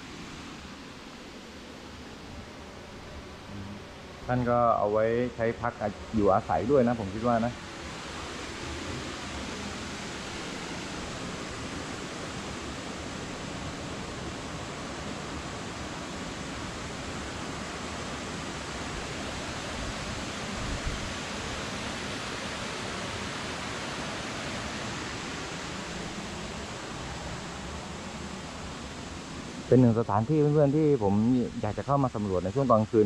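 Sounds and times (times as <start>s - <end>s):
waterfall rushing: 4.4s - 33.0s.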